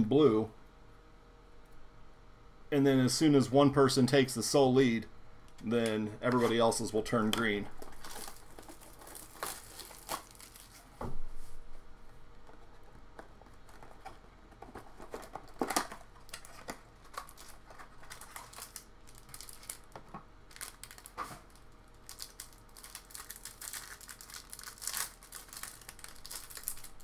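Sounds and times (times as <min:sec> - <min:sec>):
plastic wrap crinkling: 0:06.4 - 0:11.0, 0:12.3 - 0:27.0
cardboard rustling: 0:07.7 - 0:11.6, 0:12.3 - 0:19.8.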